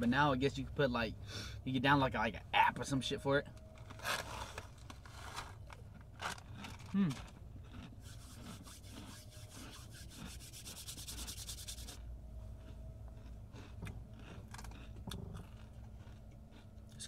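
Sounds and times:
hands rubbing together: 8.0 - 12.0.

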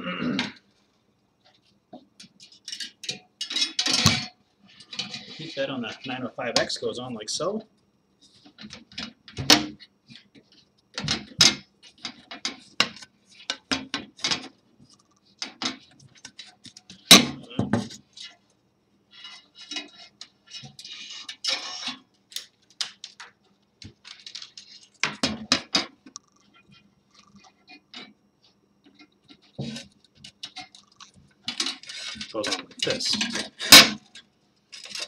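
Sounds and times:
metal scraping: 19.2 - 22.0.

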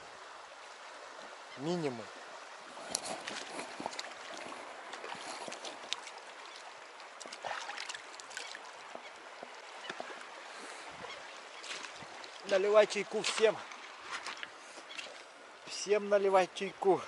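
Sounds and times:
stream running over pebbles: 0.0 - 17.0
small clicks and splashes: 2.8 - 10.3, 11.6 - 15.3.

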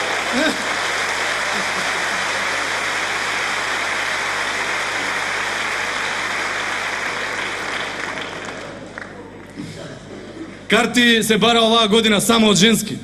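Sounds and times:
audience applauding: 0.0 - 9.6.

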